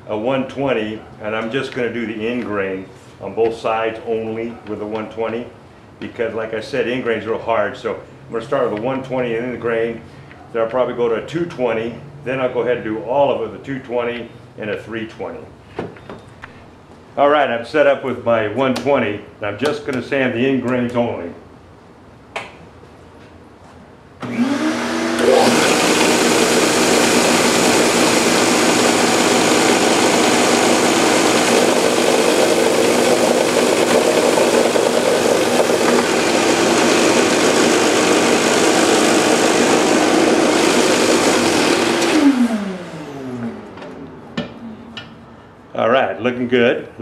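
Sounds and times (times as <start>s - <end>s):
belt sander sanding wood: 24.2s - 42.8s
motor hum coasting down: 24.2s - 44.2s.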